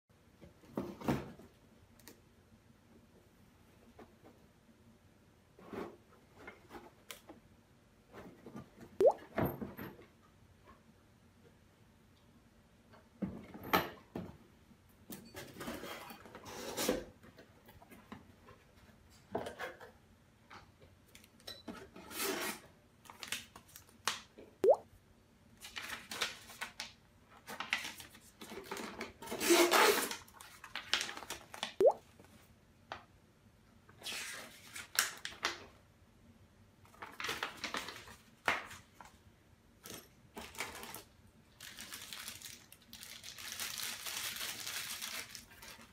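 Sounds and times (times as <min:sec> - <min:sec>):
cardboard paper and plastic rustling: 0:25.6 - 0:32.4, 0:36.8 - 0:39.2, 0:39.8 - 0:45.9.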